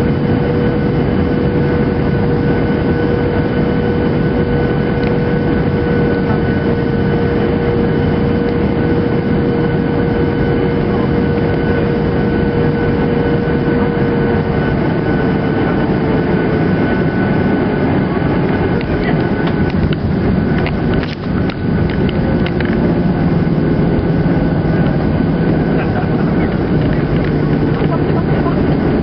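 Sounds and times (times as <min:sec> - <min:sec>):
engine whine: 0:00.0 - 0:29.0
jet engines running: 0:00.0 - 0:29.0.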